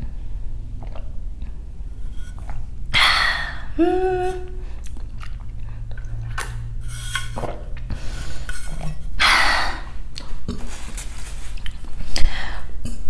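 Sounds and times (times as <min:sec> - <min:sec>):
chewing and swallowing: 0:00.7 - 0:01.7, 0:04.6 - 0:06.8.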